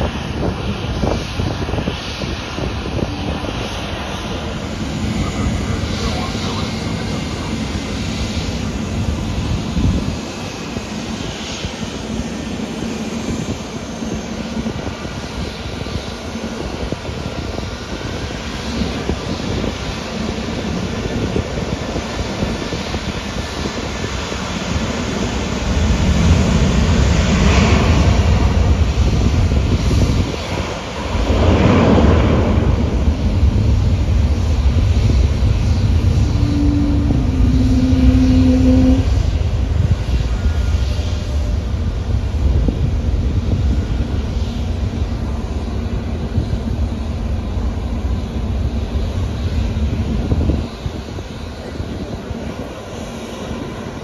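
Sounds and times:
jet airliner engines roaring: 0.0s - 54.0s.

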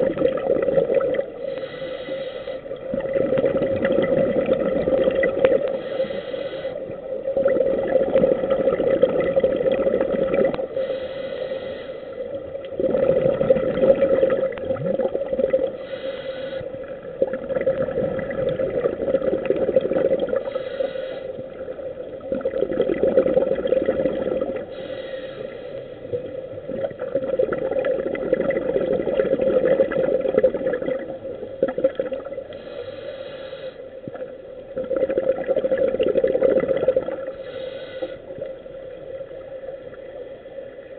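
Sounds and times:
scuba regulator bubbling exhalations: 0.0s - 1.8s, 2.8s - 5.9s, 7.3s - 10.7s, 12.7s - 16.0s, 17.0s - 20.8s, 22.2s - 25.0s, 26.2s - 32.8s, 34.1s - 38.2s
regulator hissing inhalations: 1.4s - 2.8s, 5.6s - 7.0s, 10.7s - 12.3s, 15.7s - 16.8s, 20.4s - 21.6s, 24.7s - 26.2s, 32.5s - 34.0s, 37.3s - 38.5s.

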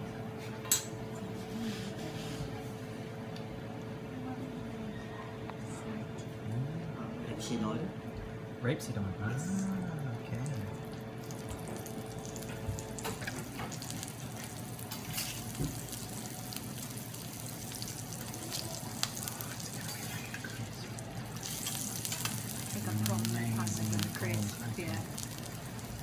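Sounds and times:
shrimp sizzling on griddle: 11.2s - 26.0s.

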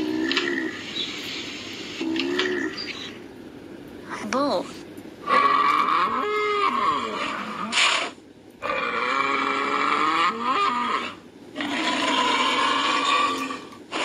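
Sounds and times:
bull bellowing: 5.2s - 14.0s.

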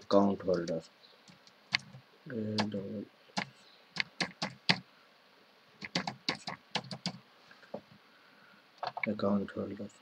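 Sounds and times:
keyboard typing: 0.5s - 2.8s, 3.4s - 4.8s, 5.8s - 7.2s.

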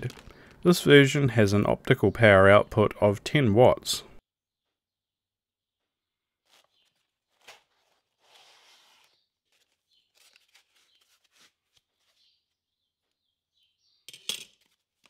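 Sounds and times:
foam rubbing and squeaking: 6.4s - 12.4s.

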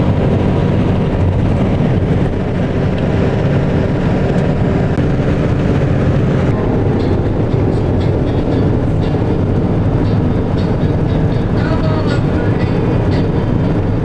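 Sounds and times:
road and engine noise in car cabin: 0.0s - 14.0s.

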